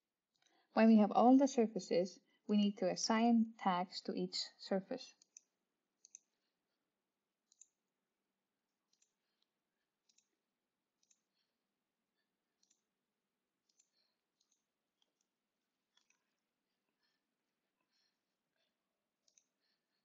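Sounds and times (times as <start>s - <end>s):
computer mouse clicks: 5.2s - 6.4s, 7.4s - 7.8s, 8.9s - 9.2s, 10.0s - 10.3s, 11.0s - 11.4s, 12.6s - 12.9s, 13.6s - 15.3s, 15.9s - 16.2s, 19.2s - 19.6s.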